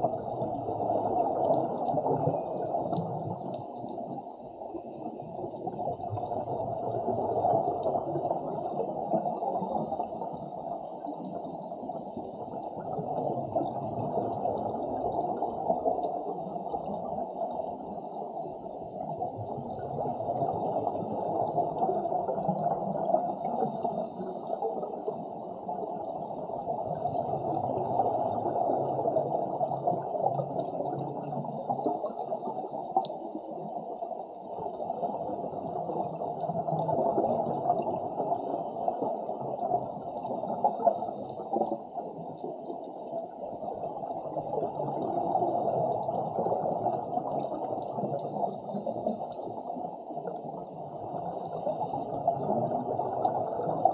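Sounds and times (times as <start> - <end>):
underwater bubbling: 0.0 - 53.9
faint regulator breathing hiss: 23.1 - 25.1, 31.2 - 33.7, 38.2 - 41.8.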